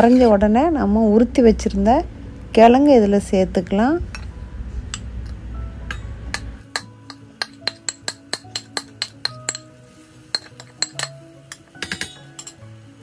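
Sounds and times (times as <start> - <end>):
quiet background music: 0.0 - 13.0
spoon clinking against plate: 5.9 - 9.7, 10.3 - 12.6.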